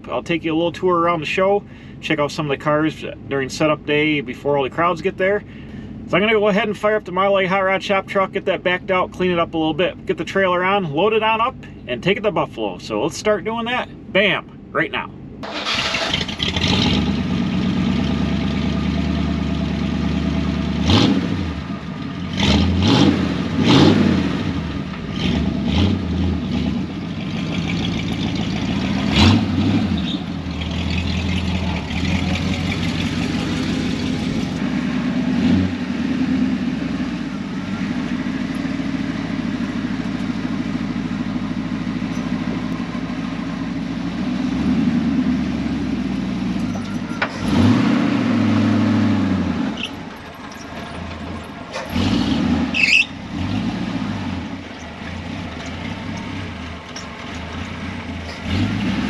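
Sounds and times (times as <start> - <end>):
truck engine revving and idling: 15.3 - 59.0.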